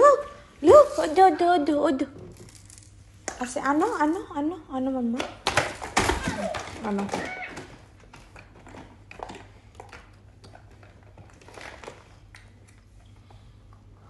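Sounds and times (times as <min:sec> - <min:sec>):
plastic toys clicking and rustling: 0:05.4 - 0:12.8.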